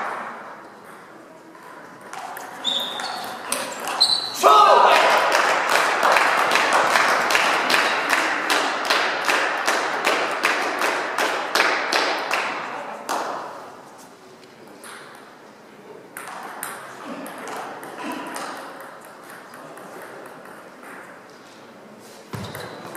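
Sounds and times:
crowd clapping: 4.9 - 13.3.

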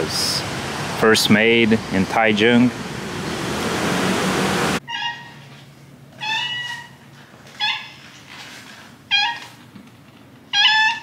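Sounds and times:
cat meowing: 6.2 - 7.0, 9.1 - 9.6, 10.5 - 11.0.

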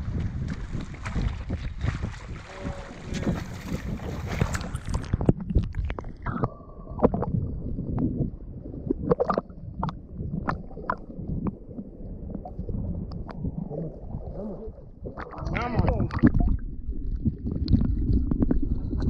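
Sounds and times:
seawater gurgling and sloshing: 0.0 - 19.0
steady low rumble: 0.0 - 19.0
short sharp splashes: 0.1 - 5.2
clicks in water: 9.1 - 11.6, 15.2 - 16.6.

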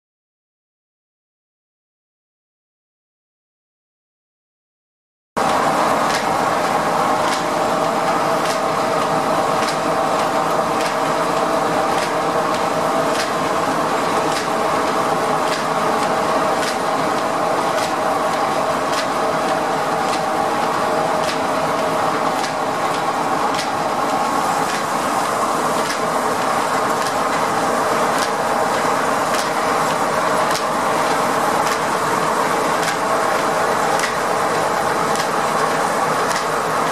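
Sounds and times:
steam sawmill machinery hum: 5.4 - 36.9
sharp mechanical tick: 7.2 - 7.5, 9.6 - 11.0, 11.9 - 13.4, 14.3 - 14.6, 16.6 - 18.0, 22.4 - 23.8, 30.4 - 31.9, 32.8 - 34.3, 35.1 - 36.9.

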